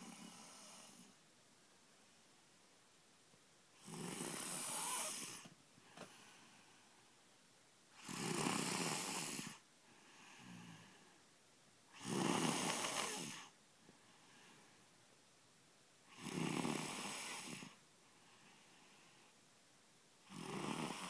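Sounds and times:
girl snoring loudly: 0:03.8 - 0:05.4, 0:08.0 - 0:09.6, 0:11.9 - 0:13.6, 0:16.1 - 0:17.8, 0:20.2 - 0:21.0
soft breath: 0:04.2 - 0:07.2, 0:09.0 - 0:11.4, 0:12.6 - 0:15.1, 0:17.3 - 0:19.5.

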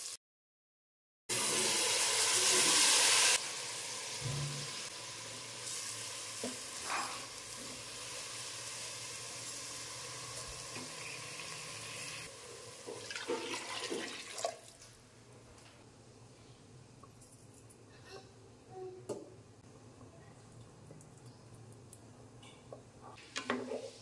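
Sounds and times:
rice sizzling in oil: 0:01.3 - 0:14.1
water poured into pot: 0:12.7 - 0:14.8.

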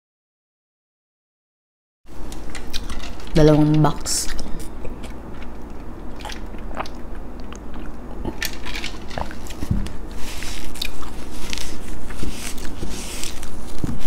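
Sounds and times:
person chewing: 0:02.5 - 0:03.0, 0:04.2 - 0:14.0.

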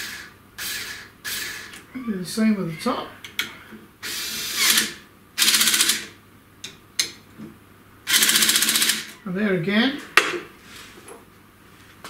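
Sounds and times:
cordless drill driving screws: 0:04.0 - 0:06.1.

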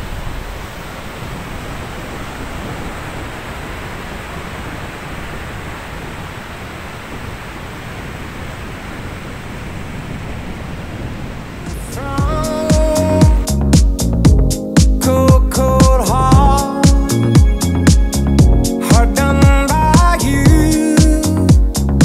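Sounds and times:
fast river rushing: 0:00.0 - 0:13.7
wind on microphone: 0:00.0 - 0:22.0.

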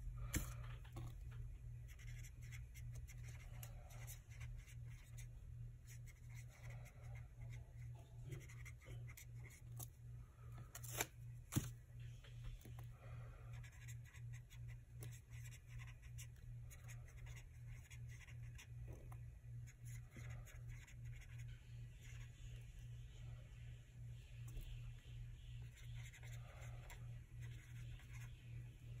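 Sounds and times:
steady low hum: 0:00.0 - 0:29.0
marker pen scratching on paper: 0:01.9 - 0:09.8, 0:13.5 - 0:19.0, 0:19.6 - 0:22.6, 0:25.6 - 0:29.0.

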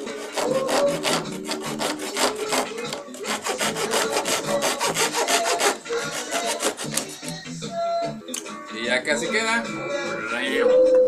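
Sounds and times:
rasping strokes on wood: 0:00.0 - 0:07.4.

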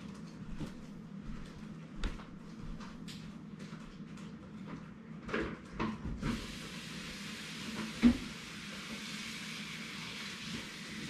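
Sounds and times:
steady hiss: 0:06.2 - 0:11.0.

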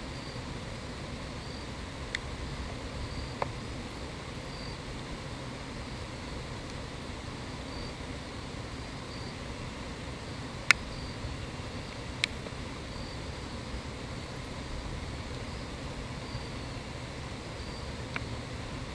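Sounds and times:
insects chirping: 0:00.0 - 0:18.9
low background hum: 0:00.0 - 0:18.9.

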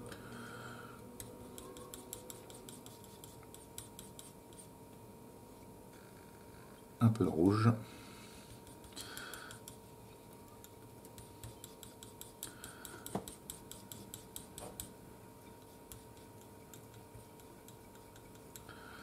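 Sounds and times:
palette knife scraping and tapping: 0:01.2 - 0:04.7, 0:08.5 - 0:18.7.

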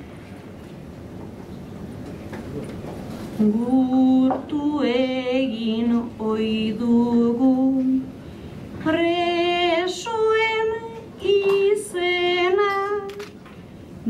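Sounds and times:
woman singing unaccompanied: 0:03.4 - 0:08.1, 0:08.8 - 0:13.2.

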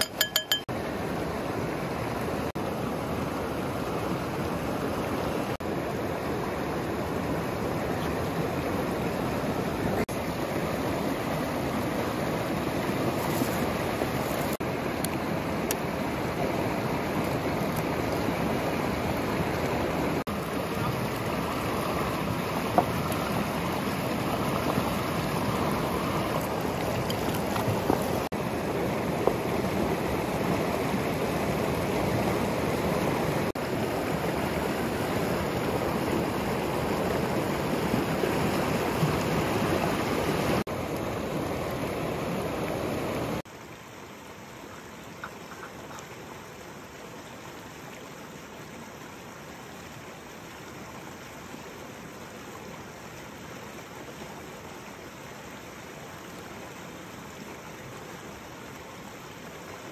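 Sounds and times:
river rushing over rocks: 0:00.0 - 0:44.6.

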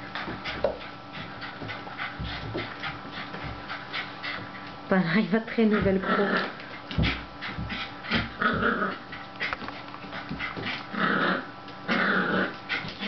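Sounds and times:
paws scrabbling on wooden floor: 0:00.0 - 0:10.9
dogs growling in play: 0:05.6 - 0:13.0.

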